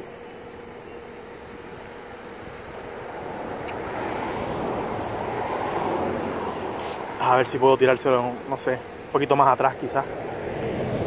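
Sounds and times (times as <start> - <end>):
faint bird chirps: 0.0 - 1.8
vehicle passing: 2.1 - 11.0.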